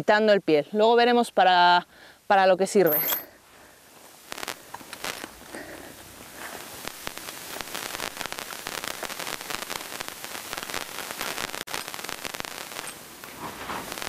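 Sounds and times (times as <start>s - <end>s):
metal chain clicking and rattling: 2.9s - 3.3s.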